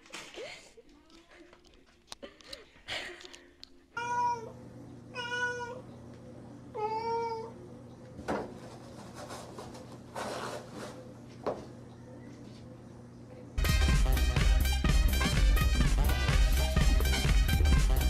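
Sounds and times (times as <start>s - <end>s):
cat meowing: 4.0s - 5.8s, 6.8s - 7.6s
toilet paper roll rustling: 8.3s - 11.4s.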